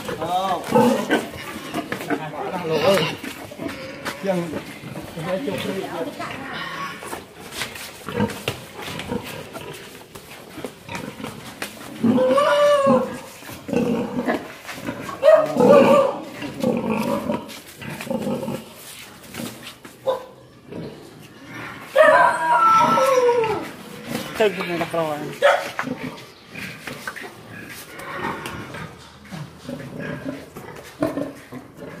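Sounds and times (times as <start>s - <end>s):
pigs grunting: 0.0s - 19.7s, 20.6s - 32.0s
pig squealing: 2.4s - 4.1s, 12.0s - 14.2s, 14.9s - 17.2s, 20.6s - 24.6s.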